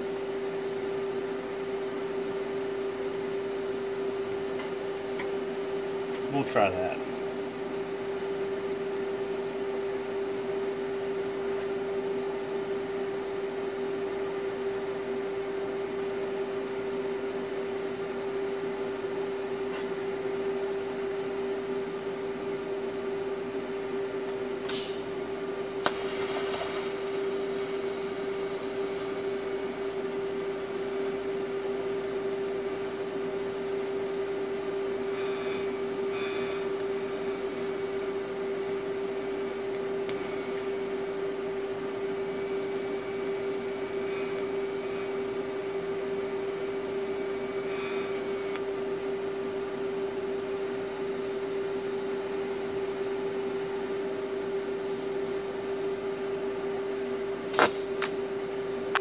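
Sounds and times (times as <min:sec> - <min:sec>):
constant hum: 0:00.0 - 0:59.0
welding arc crackle and click: 0:24.7 - 0:25.2, 0:25.8 - 0:48.7, 0:57.5 - 0:58.2
welding arc hissing: 0:24.7 - 0:48.6, 0:57.5 - 0:58.2.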